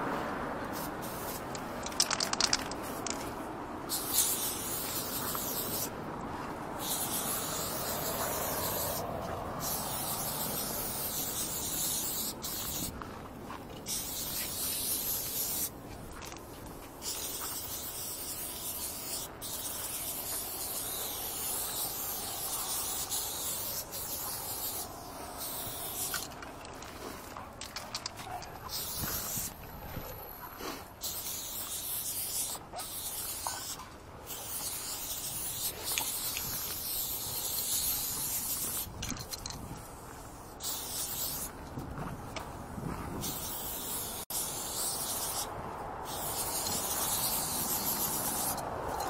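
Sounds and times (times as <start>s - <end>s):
spray paint can hissing: 0.7s - 3.3s, 3.9s - 5.9s, 6.8s - 13.0s, 13.8s - 15.8s, 17.0s - 26.8s, 28.7s - 29.6s, 30.3s - 41.5s, 43.2s - 49.0s
sharp clicks: 1.5s - 3.2s.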